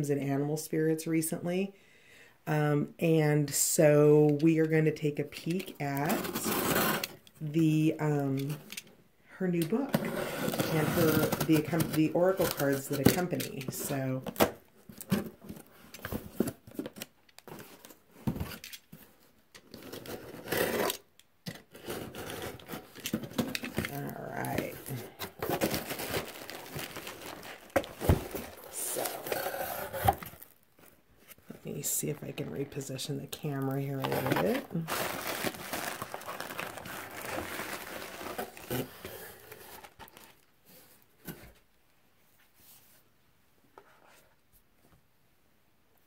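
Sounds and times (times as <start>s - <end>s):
cardboard box scraping: 6.0s - 7.2s, 9.9s - 12.6s, 19.8s - 21.0s, 21.7s - 30.6s, 33.8s - 40.4s
plastic packaging crinkling: 21.8s - 31.0s, 32.7s - 40.5s.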